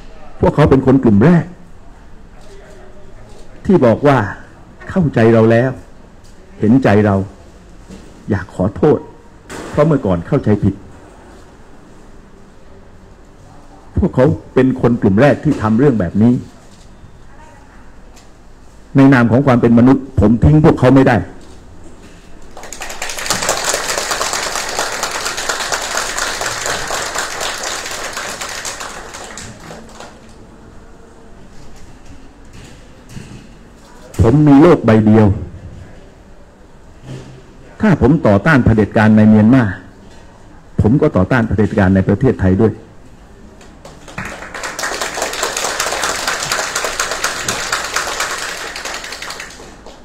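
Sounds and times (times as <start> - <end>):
audience applauding: 22.5 - 30.4, 43.8 - 50.0.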